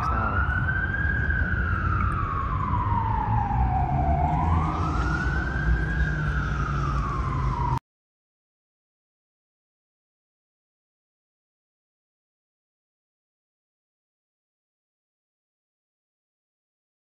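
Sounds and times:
siren wailing: 0.0 - 7.8.

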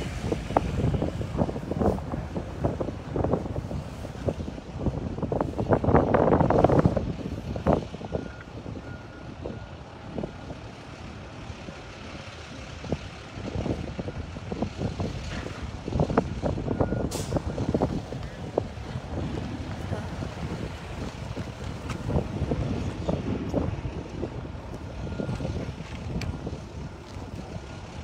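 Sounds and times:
wind buffeting microphone: 0.0 - 28.0
faint backup alarm beeps: 24.9 - 27.9.

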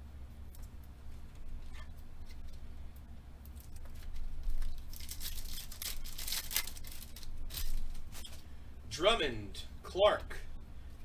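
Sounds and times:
foil wrapper tearing and crinkling: 3.5 - 8.3.

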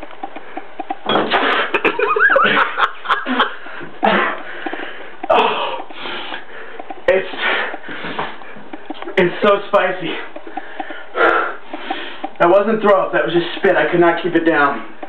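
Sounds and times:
man retching and coughing: 1.0 - 4.6.

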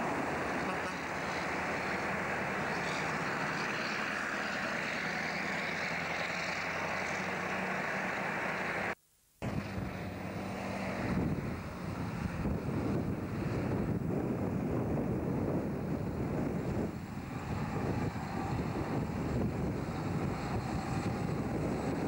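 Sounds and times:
truck diesel engine running: 0.0 - 22.0.

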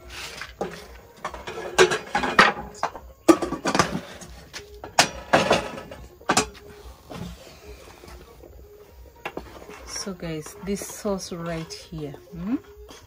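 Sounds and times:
metal pot and utensils clattering: 0.0 - 7.3.

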